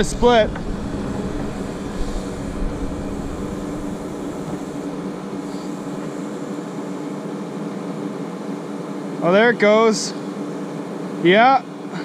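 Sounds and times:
excavator engine droning: 0.0 - 8.7.

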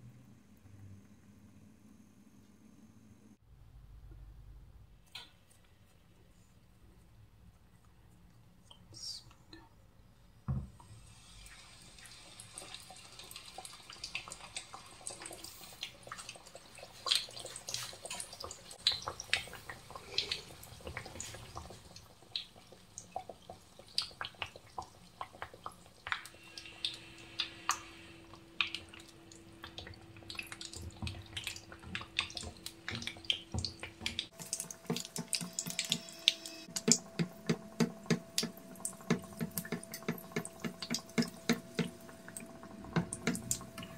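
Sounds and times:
hot oil sizzling and popping: 10.8 - 43.9.

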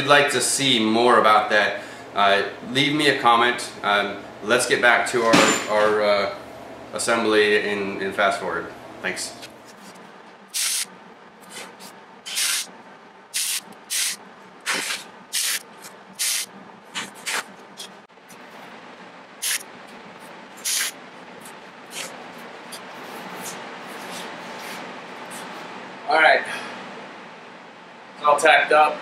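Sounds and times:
welding arc crackles: 10.5 - 12.7, 13.3 - 17.5, 19.4 - 19.6, 20.6 - 21.0.

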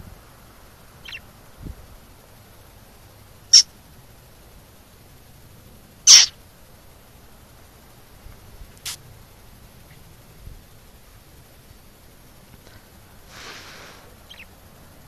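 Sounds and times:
budgerigar chirping: 1.0 - 1.2, 6.1 - 6.4, 14.3 - 14.6.

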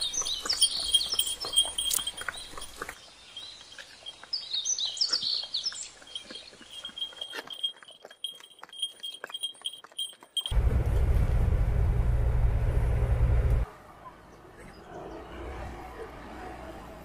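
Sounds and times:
birds chirping: 0.0 - 8.8
hooves clopping: 0.0 - 10.9.

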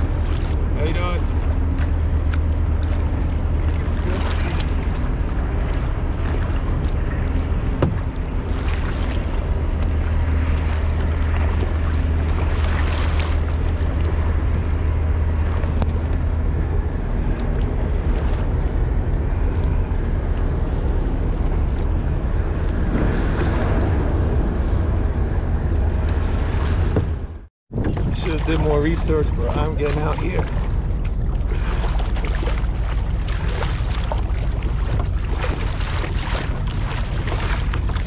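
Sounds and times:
paddle strokes splashing: 0.0 - 16.3, 27.9 - 38.0
low hum: 0.0 - 38.0
water lapping: 0.0 - 38.0
wind rumbling on microphone: 0.0 - 38.0.

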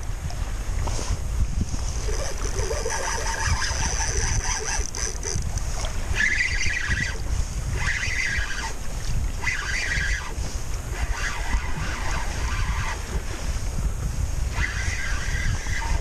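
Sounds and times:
wind buffeting microphone: 0.0 - 16.0
fishing reel winding: 2.0 - 7.2.

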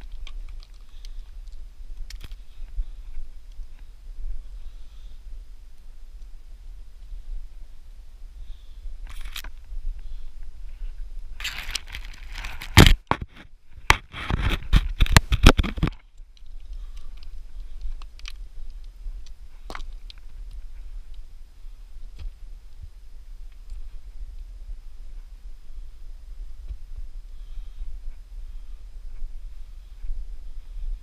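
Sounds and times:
close scrapes crackles and knocks: 0.0 - 5.2, 8.5 - 25.4
steady low rumble: 0.0 - 13.9, 15.9 - 31.0.

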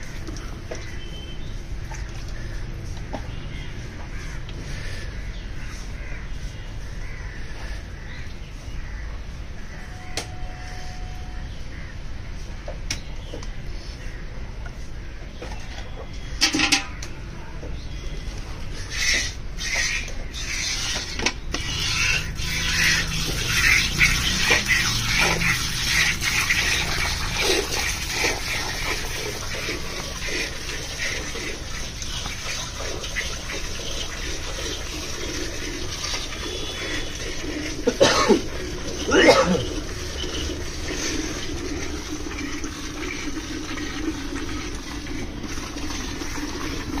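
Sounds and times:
milk squirting into steel bucket: 19.0 - 47.0.

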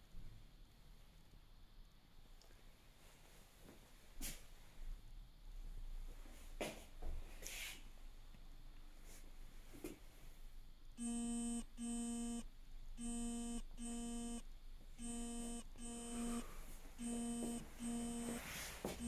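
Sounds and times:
electronic beeper beeping: 13.0 - 14.4, 15.0 - 16.4, 17.0 - 18.4.

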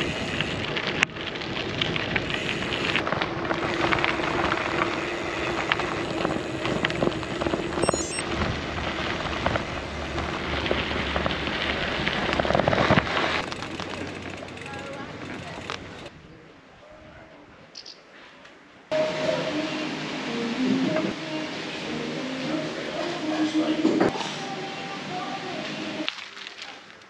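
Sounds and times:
bicycle tyres crunching on gravel: 0.0 - 16.1, 26.0 - 27.0.

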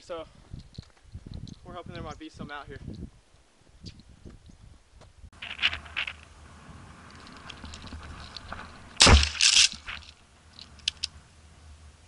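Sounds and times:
shotgun shot: 9.0 - 9.8.

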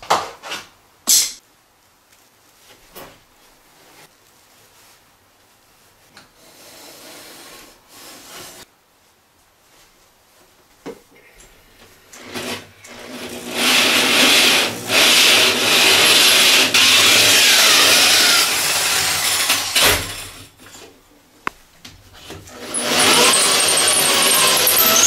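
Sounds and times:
drill hole saw cutting board: 12.2 - 20.5, 22.5 - 25.0.

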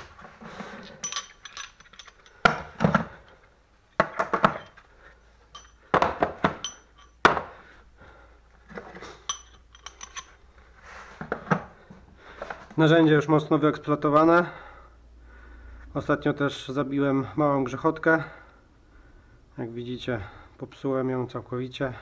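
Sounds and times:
metal hand tools clinking: 0.7 - 3.4, 5.5 - 7.2, 9.1 - 10.4.

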